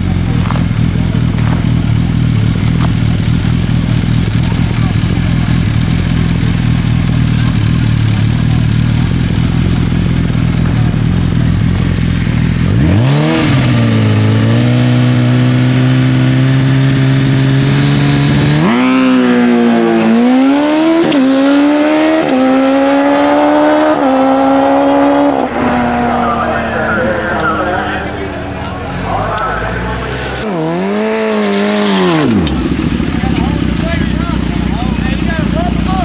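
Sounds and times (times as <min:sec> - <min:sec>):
motorcycle accelerating through gears: 0:00.0 - 0:36.0
motorcycle engine revving: 0:00.0 - 0:36.0.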